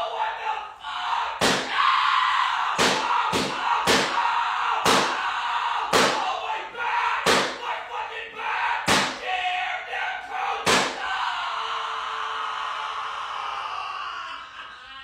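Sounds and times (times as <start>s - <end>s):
loud bangs: 2.8s - 4.2s, 4.8s - 5.2s, 8.8s - 9.2s, 10.6s - 11.0s.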